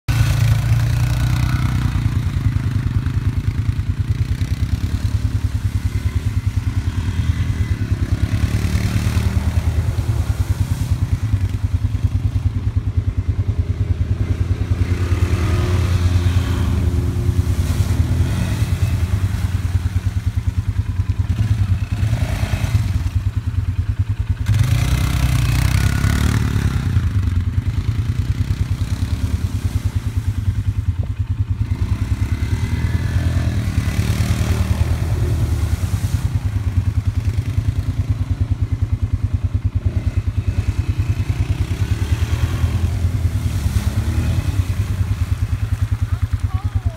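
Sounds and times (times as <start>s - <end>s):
atv engine revving: 0.0s - 46.9s
engine running with low throb: 0.0s - 46.9s.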